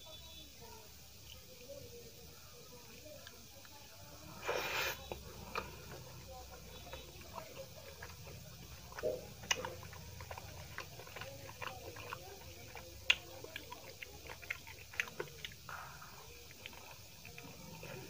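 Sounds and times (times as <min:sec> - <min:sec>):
wet chewing and mouth smacks: 0:04.4 - 0:18.0.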